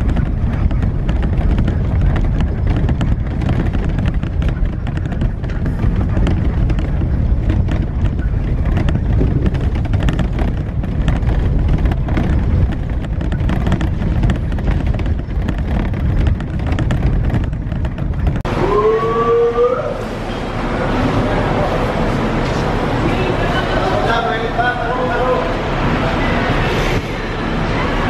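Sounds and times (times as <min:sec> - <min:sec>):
small rattles and knocks: 0:00.0 - 0:18.5
bus engine and road rumble: 0:00.0 - 0:28.0.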